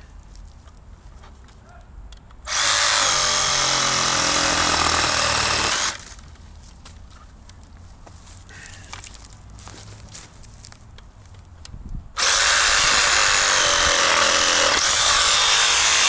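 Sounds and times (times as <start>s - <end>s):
reciprocating saw running: 2.5s - 6.0s, 12.2s - 16.0s.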